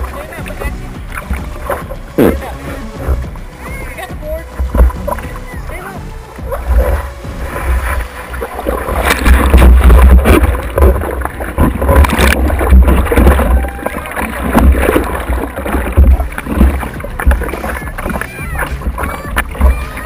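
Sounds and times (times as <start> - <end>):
surf splashing over surfboard: 0.0 - 20.0
water hitting camera case: 4.5 - 5.6, 6.3 - 20.0.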